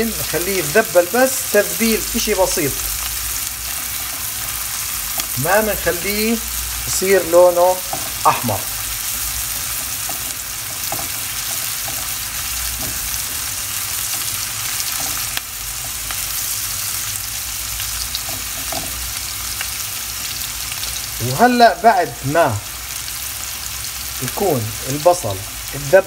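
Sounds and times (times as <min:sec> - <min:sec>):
onion sizzling in pan: 0:00.0 - 0:26.0
spatula stirring: 0:03.0 - 0:16.3.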